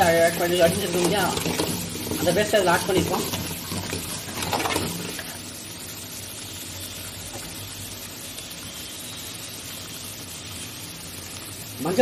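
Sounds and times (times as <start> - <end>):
paste sizzling in oil: 0.0 - 12.0.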